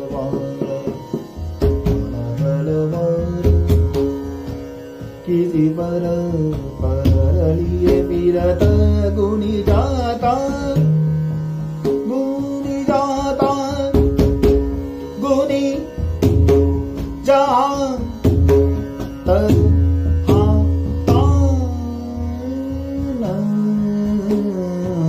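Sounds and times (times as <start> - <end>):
tanpura drone: 0.0 - 25.0
man singing ornamented phrases: 5.3 - 11.0, 12.1 - 14.0, 19.2 - 25.0.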